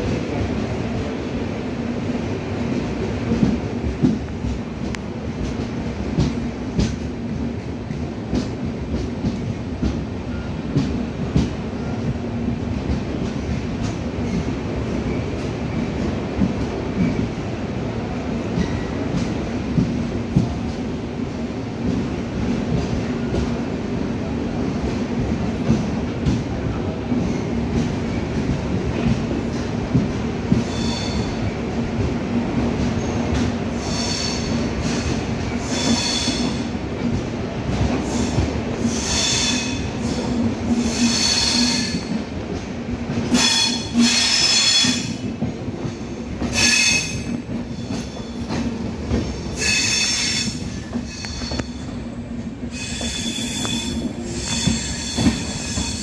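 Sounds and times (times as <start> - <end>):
train wheels rumbling on rail: 0.0 - 56.0
high-pitched wheel squeals: 52.8 - 56.0.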